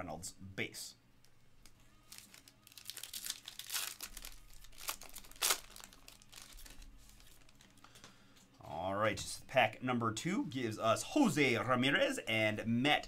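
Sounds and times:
foil card pack crinkling: 0:01.6 - 0:08.0.

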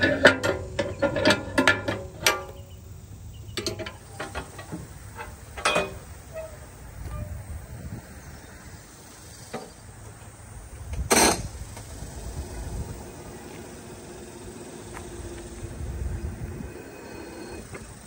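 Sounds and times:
metal cover clanking: 0:00.0 - 0:02.8, 0:03.5 - 0:07.3.

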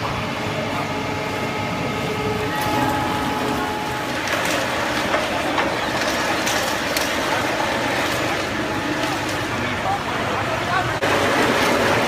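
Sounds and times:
rolling machine running: 0:00.0 - 0:12.0.

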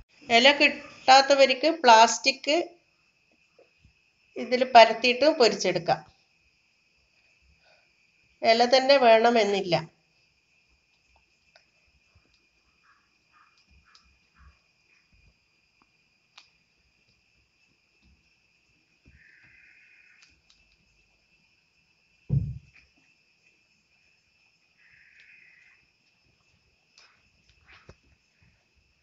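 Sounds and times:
faint high whine: 0:00.0 - 0:29.0
loud low thump: 0:22.3 - 0:22.7
hand patting dough: 0:22.3 - 0:22.8.

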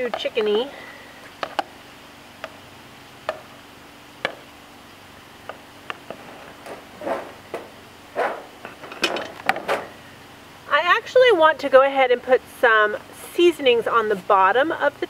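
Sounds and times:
plastic wrapping rustling: 0:06.0 - 0:10.0.

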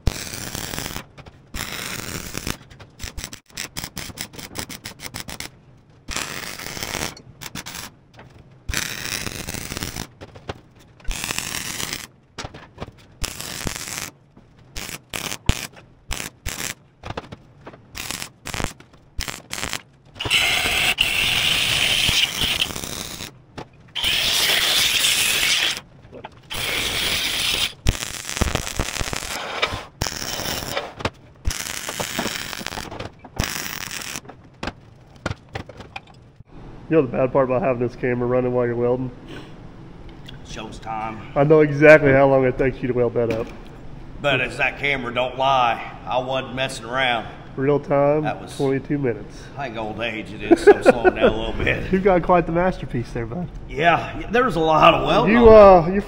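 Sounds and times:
welding arc crackling and hissing: 0:00.0 - 0:05.5, 0:06.1 - 0:07.9, 0:08.7 - 0:10.1, 0:11.0 - 0:12.1, 0:13.2 - 0:16.8, 0:17.9 - 0:23.4, 0:24.0 - 0:34.2.

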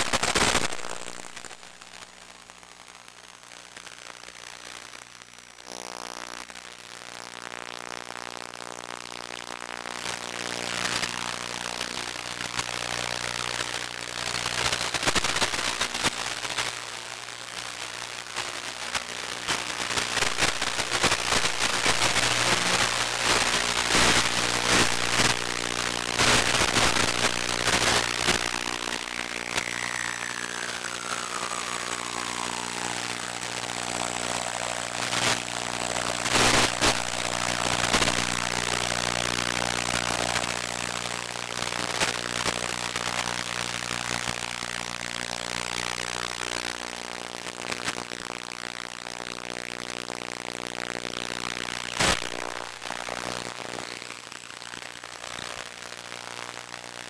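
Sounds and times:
whine sliding down in pitch: 0:28.0 - 0:37.6
drone propellers buzzing: 0:28.8 - 0:37.9.

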